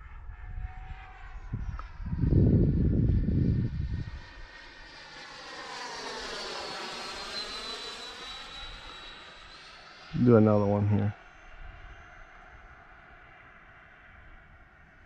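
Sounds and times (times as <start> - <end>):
jet rushing past: 1.0 - 13.9.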